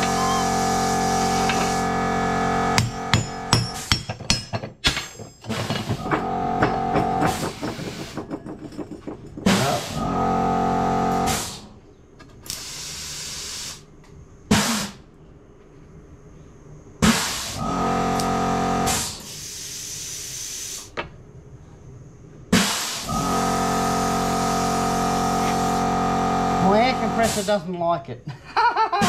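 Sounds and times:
steady machine hum: 0:00.0 - 0:04.1, 0:05.4 - 0:12.2, 0:15.1 - 0:19.3, 0:21.2 - 0:28.4
metal knocks and clanks: 0:02.8 - 0:10.1
hissing air bursts: 0:12.5 - 0:13.9, 0:17.0 - 0:17.7, 0:18.9 - 0:20.9, 0:22.5 - 0:25.9.

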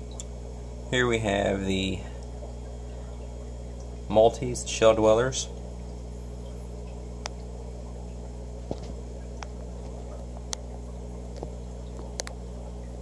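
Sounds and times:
aquarium pump hum: 0:00.0 - 0:13.0
faint bubbling: 0:05.5 - 0:13.0.

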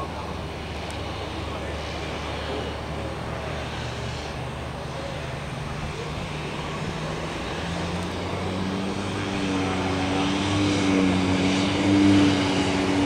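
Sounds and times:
turboprop engine drone: 0:00.0 - 0:13.0.

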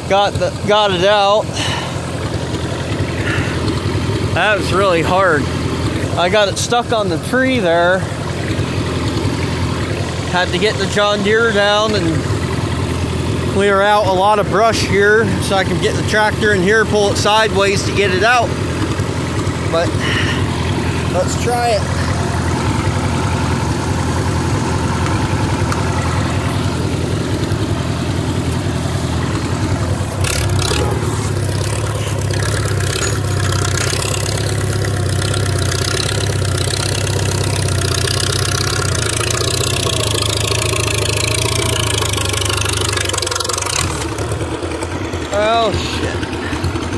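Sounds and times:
tractor engine running: 0:00.0 - 0:46.9.

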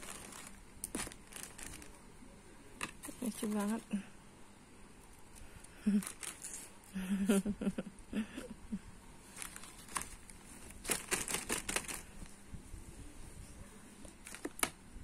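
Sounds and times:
plastic bag crinkling: 0:00.0 - 0:02.1, 0:02.8 - 0:03.9, 0:05.8 - 0:06.8, 0:09.2 - 0:12.3, 0:14.2 - 0:14.7.

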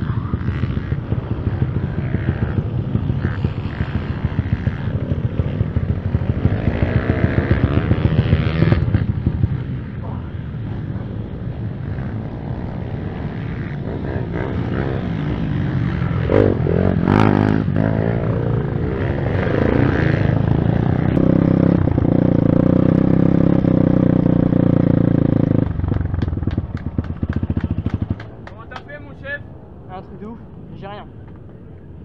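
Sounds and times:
motorbike engine revving: 0:00.0 - 0:28.5.

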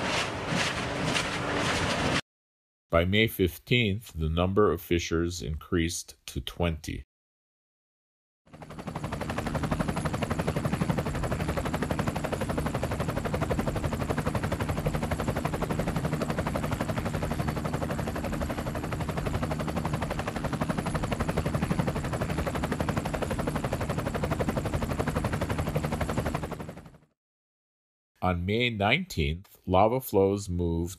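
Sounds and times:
helicopter rotor beating: 0:00.0 - 0:02.2, 0:08.5 - 0:27.2.

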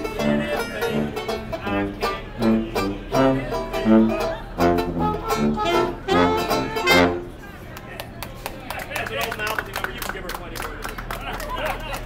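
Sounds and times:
plucked strings: 0:00.0 - 0:07.3
brass horn: 0:00.2 - 0:07.4.

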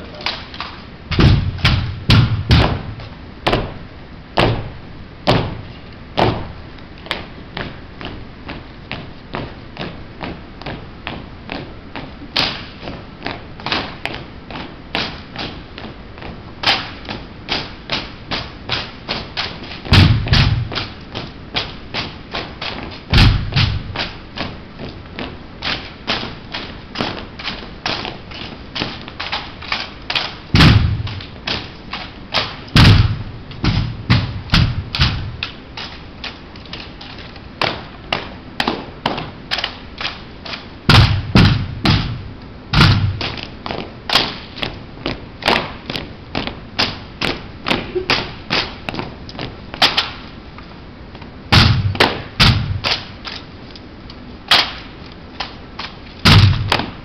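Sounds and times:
rifles thumping: 0:00.3 - 0:03.8, 0:16.6 - 0:24.2, 0:25.6 - 0:44.8, 0:54.5 - 0:57.0
boot heels marching: 0:00.6 - 0:03.8, 0:04.4 - 0:53.5.

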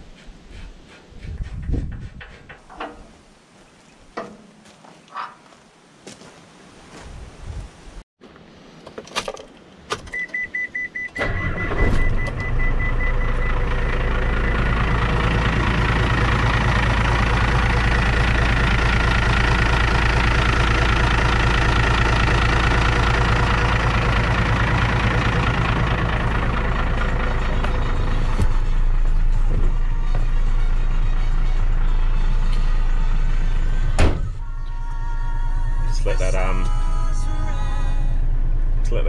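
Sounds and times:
diesel truck engine starting: 0:10.2 - 0:39.0
truck engine idling: 0:11.2 - 0:39.0.

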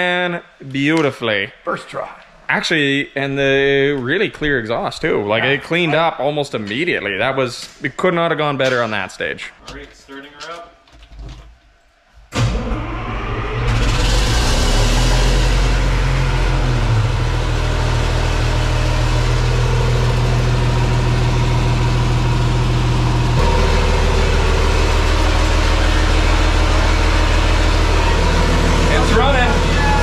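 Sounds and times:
diesel generator starting and running: 0:12.3 - 0:30.0.

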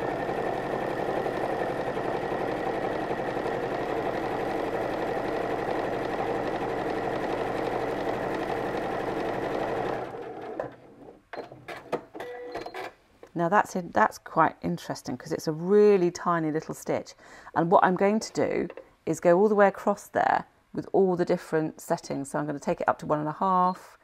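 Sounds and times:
electric sewing machine running: 0:00.0 - 0:10.8.

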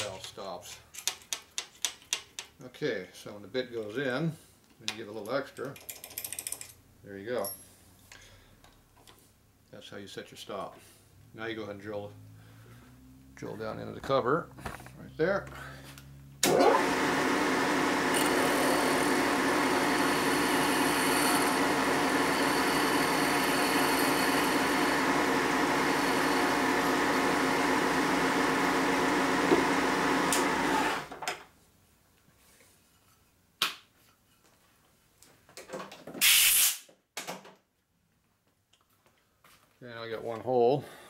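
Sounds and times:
milling machine spindle running: 0:16.5 - 0:31.0.

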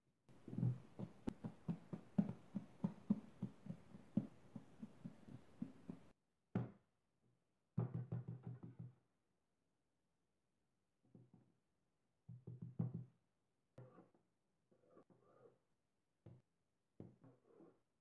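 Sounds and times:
dough kneading thumps on wood: 0:00.4 - 0:06.1.

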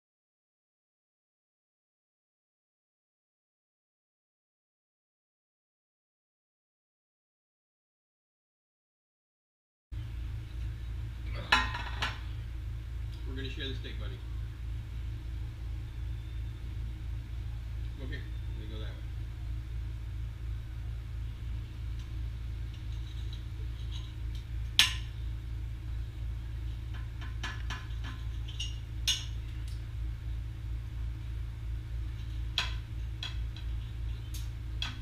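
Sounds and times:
steady low hum: 0:09.9 - 0:35.0.

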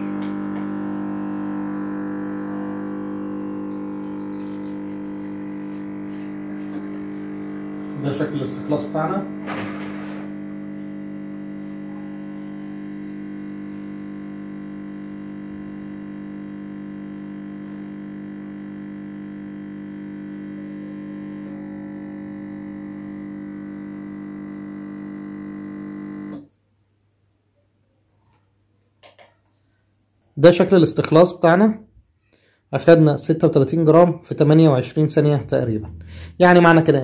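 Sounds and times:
espresso machine pump humming: 0:00.0 - 0:26.4.

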